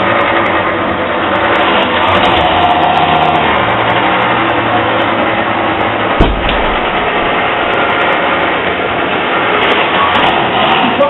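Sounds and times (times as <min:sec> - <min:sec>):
vehicle engine running: 0:00.0 - 0:11.0
sharp thump: 0:06.2 - 0:07.3.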